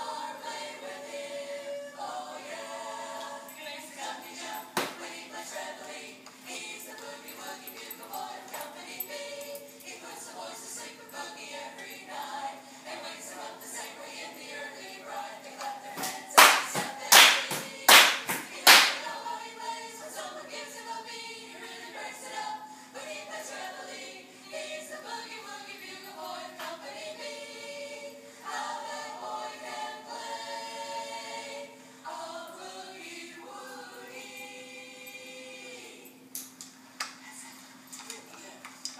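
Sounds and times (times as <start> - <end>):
group of voices singing: 0.0 - 36.2
loud hand claps: 16.0 - 19.0.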